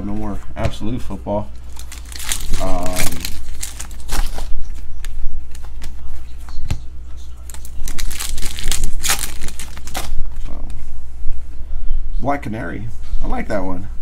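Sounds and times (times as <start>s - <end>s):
steady low hum: 0.0s - 14.0s
foil wrapper crinkling: 1.6s - 5.7s, 7.4s - 10.2s.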